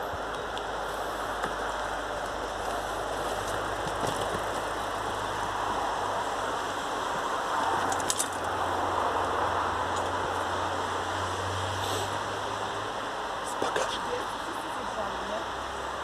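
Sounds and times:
mountain bikes rolling on dirt: 0.0s - 11.4s
steady hiss: 0.0s - 16.0s.

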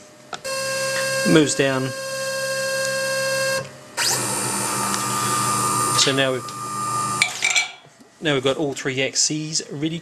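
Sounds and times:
router drive motors whining: 0.4s - 7.2s.

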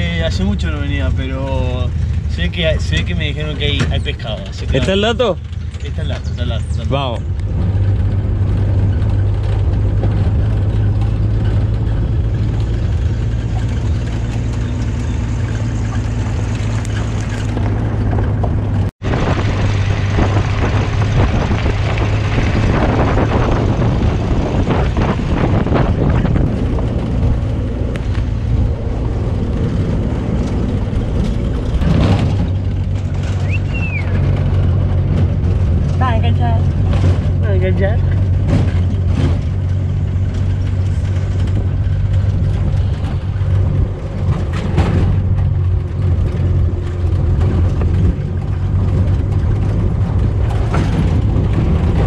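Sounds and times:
vehicle engine drone: 0.0s - 52.0s
rushing noise: 7.7s - 36.0s.

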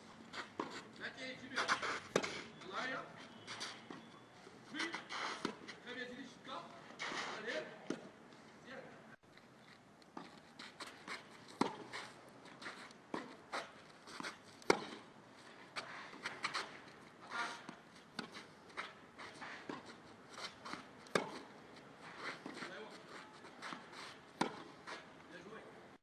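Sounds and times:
racket hitting tennis ball: 0.3s - 0.9s, 1.5s - 2.5s, 4.8s - 5.8s, 10.2s - 25.1s.

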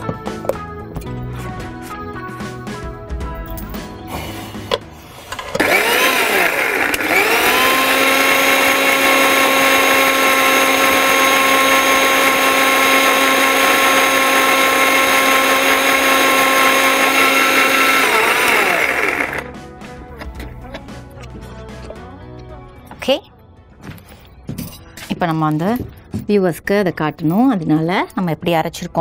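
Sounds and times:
mixer grinder motor whine: 4.8s - 19.6s.

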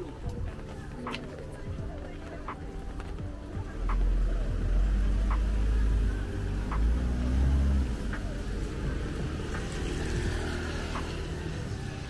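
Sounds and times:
motor vehicle passing close by: 5.0s - 11.7s.

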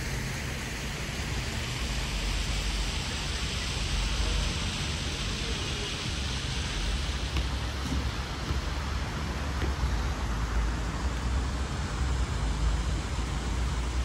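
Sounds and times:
rushing outdoor background noise: 0.0s - 14.0s.

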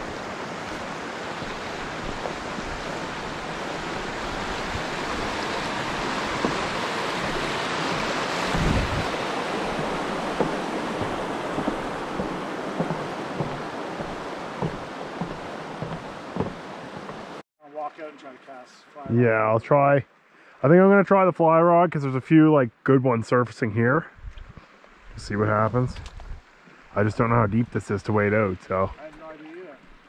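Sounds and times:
brook rushing over rocks: 0.0s - 17.4s
footsteps on wooden planks: 0.6s - 17.4s.

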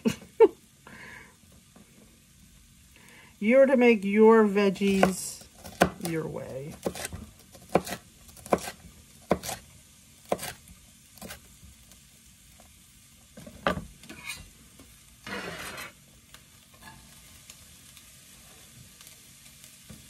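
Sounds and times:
vegetables sizzling in a pan: 0.0s - 20.0s
knife chopping on cutting board: 4.9s - 6.1s, 6.7s - 9.6s, 10.3s - 10.6s, 11.2s - 11.4s.

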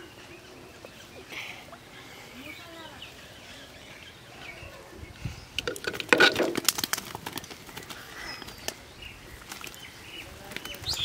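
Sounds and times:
fish slapping and splashing in water: 5.8s - 8.8s.

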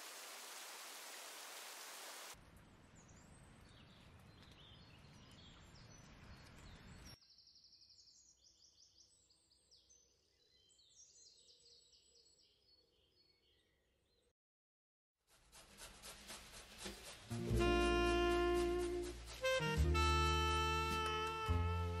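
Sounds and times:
low steady outdoor noise: 0.0s - 7.2s
songbirds chirping and trilling: 2.9s - 14.3s.

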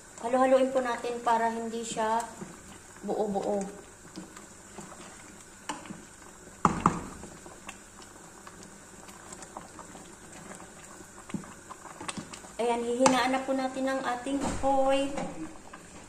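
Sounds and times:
porridge bubbling in a pot: 0.0s - 16.0s
wooden spoon stirring and scraping: 1.8s - 13.6s.

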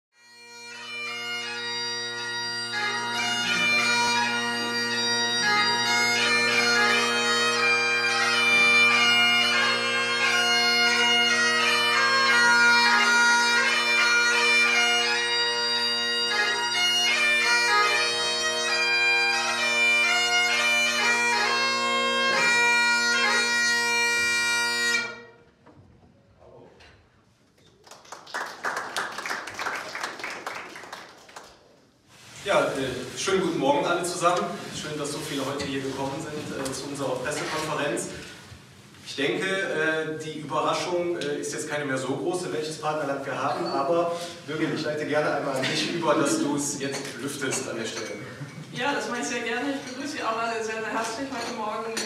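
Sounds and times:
bagpipe music: 0.2s - 25.5s, 32.2s - 52.0s.

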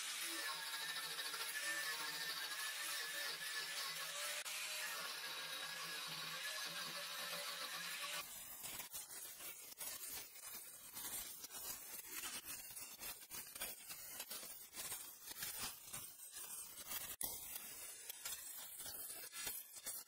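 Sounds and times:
power grinder on metal: 0.0s - 10.9s.

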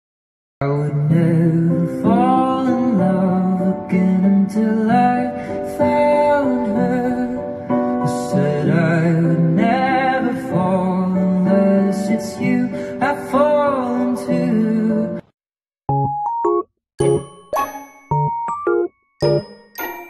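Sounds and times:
person singing: 0.6s - 15.2s
piano: 0.6s - 15.3s, 15.9s - 20.0s.

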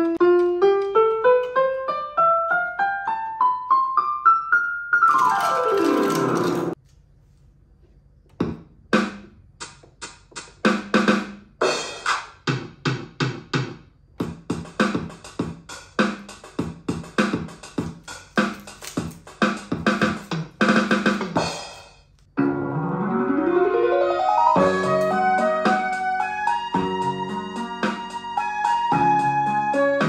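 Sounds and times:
electronic drum machine beat: 8.4s - 21.8s.

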